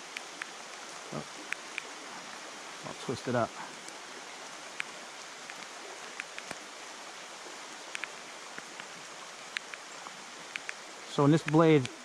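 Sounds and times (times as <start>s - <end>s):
faint ticks: 0.0s - 2.0s, 3.4s - 6.7s, 7.8s - 12.0s
rain on flowing creek: 0.0s - 12.0s.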